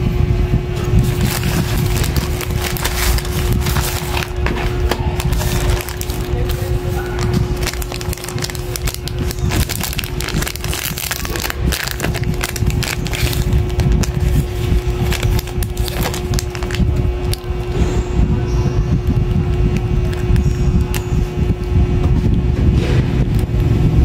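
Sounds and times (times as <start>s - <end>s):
plastic packaging crinkling: 1.0s - 17.7s, 19.5s - 21.7s.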